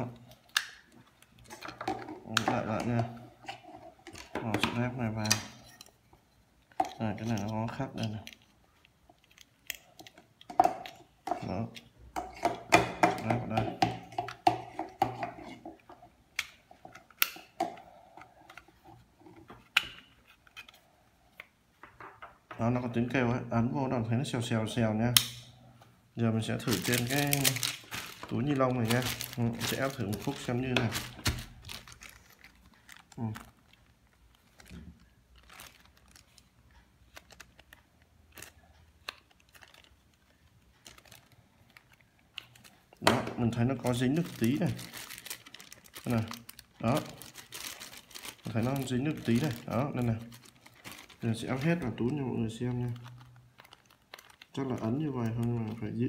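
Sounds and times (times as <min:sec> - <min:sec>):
plastic bag crinkling: 0:26.4 - 0:56.0.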